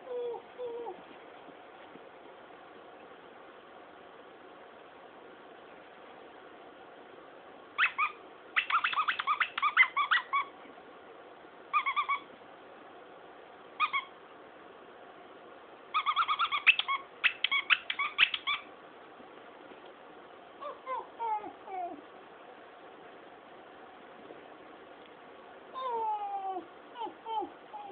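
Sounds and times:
toy squeaker squeaking: 8.6s - 10.4s.

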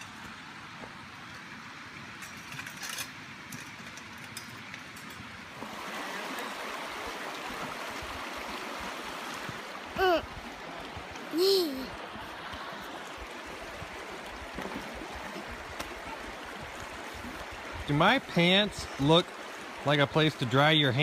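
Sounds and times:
small river rushing: 0.0s - 21.0s
high voice with falling pitch: 11.3s - 11.9s.

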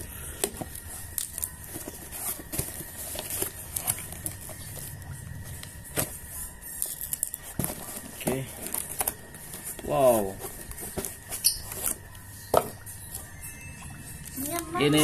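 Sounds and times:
cardboard flaps rustling: 0.4s - 4.9s, 7.4s - 12.7s.

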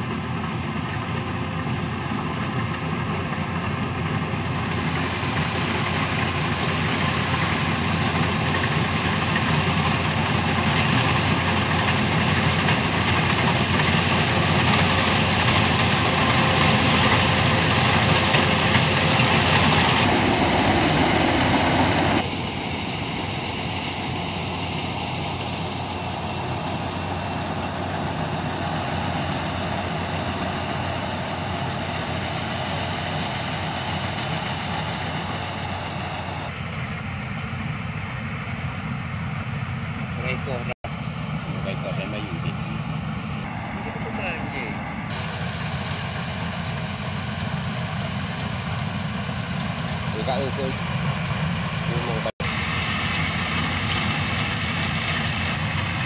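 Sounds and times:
combine harvester drone: 0.0s - 56.0s.

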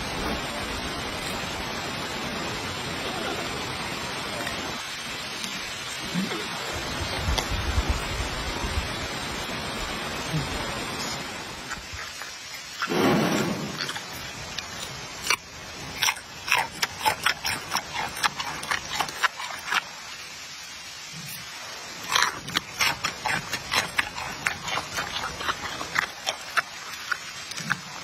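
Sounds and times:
panda chewing food: 11.6s - 20.3s, 22.0s - 28.0s.

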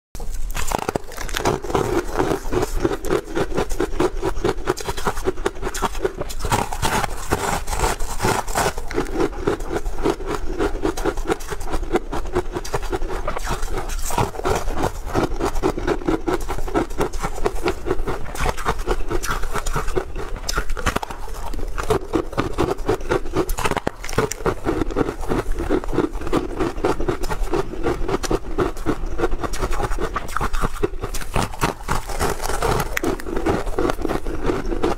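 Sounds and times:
crunchy cake being chewed: 0.2s - 34.9s.

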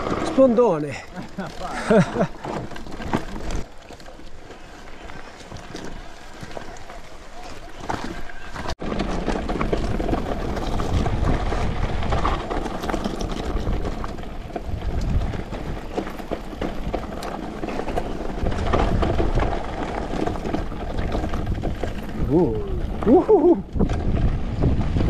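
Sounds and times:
bike rattling over rocks: 0.0s - 25.0s
tyres on loose stones: 0.0s - 25.0s
wind on camera microphone: 13.4s - 16.0s, 21.0s - 25.0s.

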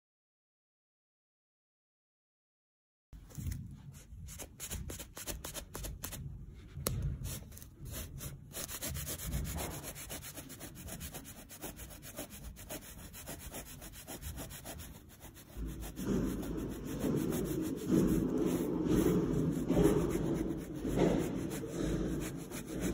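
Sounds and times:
scraper scraping carpet: 7.0s - 22.9s.

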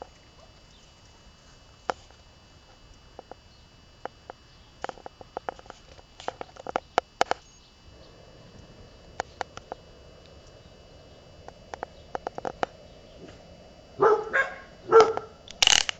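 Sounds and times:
dogs barking: 14.0s - 15.4s.

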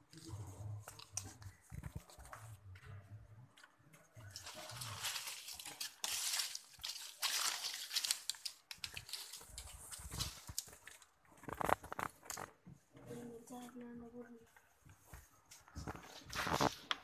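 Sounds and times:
leafy branches rustling: 4.4s - 10.7s.

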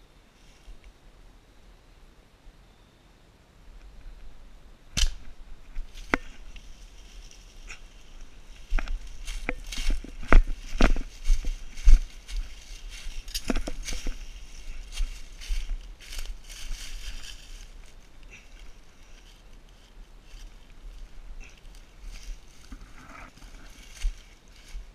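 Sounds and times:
footsteps crunching dry leaves: 5.0s - 24.9s.

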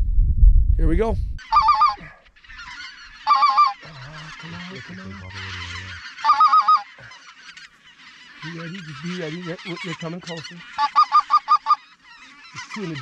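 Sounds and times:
flock of geese chattering: 1.4s - 13.0s
geese laughing calls: 1.4s - 13.0s.

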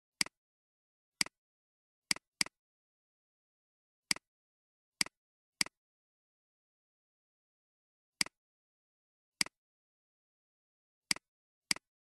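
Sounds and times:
computer mouse clicking: 11.1s - 11.9s.

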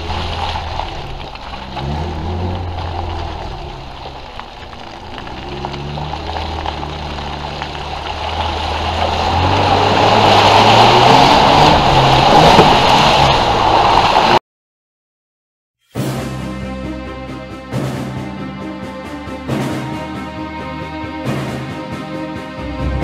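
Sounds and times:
off-road vehicle engine under load: 0.0s - 14.4s.

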